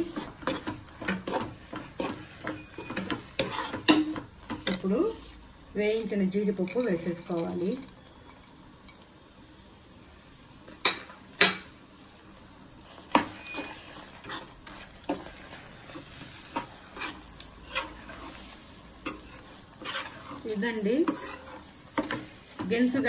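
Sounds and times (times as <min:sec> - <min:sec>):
spatula knocking and scraping pan: 0:00.0 - 0:04.9, 0:13.1 - 0:23.0.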